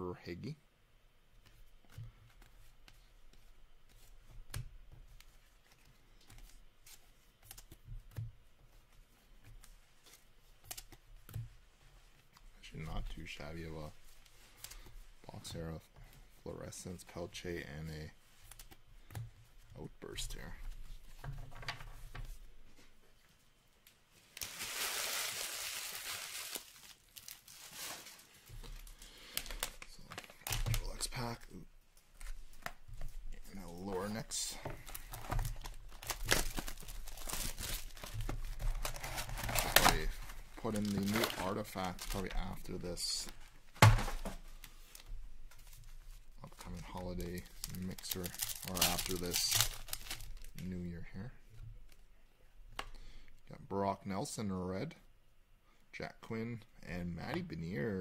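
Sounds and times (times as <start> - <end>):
foil wrapper crinkling and tearing: 24.3 - 31.3, 33.5 - 43.3, 46.5 - 50.7.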